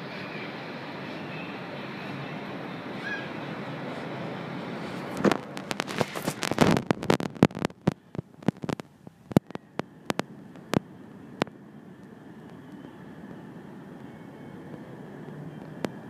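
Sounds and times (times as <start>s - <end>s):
distant city traffic hum: 0.0s - 16.0s
microphone handling clicks: 5.2s - 10.8s.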